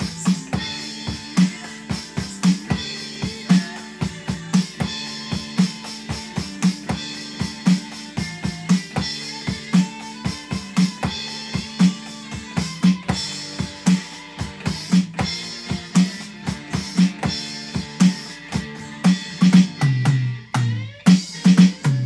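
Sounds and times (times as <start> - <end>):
drum kit playing rock beat: 0.0 - 22.0.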